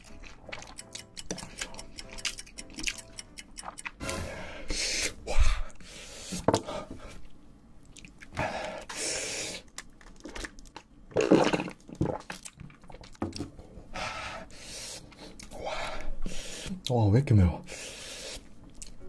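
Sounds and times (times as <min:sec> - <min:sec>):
mouth eating noises: 0:00.0 - 0:04.2
sharp breaths: 0:17.7 - 0:18.5.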